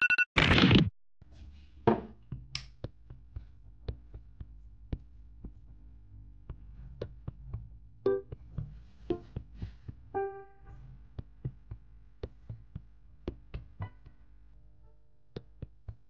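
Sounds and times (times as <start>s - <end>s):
piano note: 10.2s - 10.8s.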